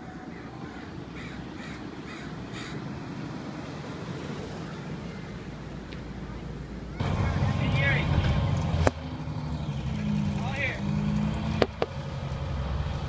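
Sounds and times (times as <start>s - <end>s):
crow cawing: 0.3s - 2.9s.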